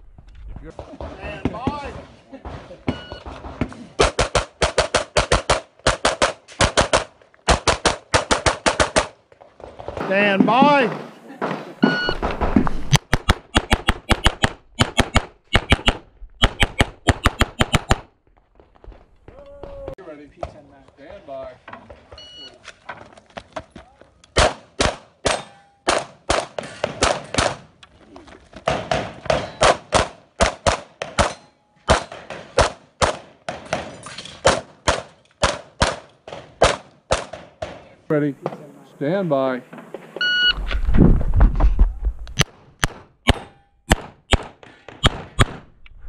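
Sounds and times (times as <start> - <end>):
rapid pistol shots: 4.0 - 9.2, 12.9 - 18.1, 42.8 - 45.7.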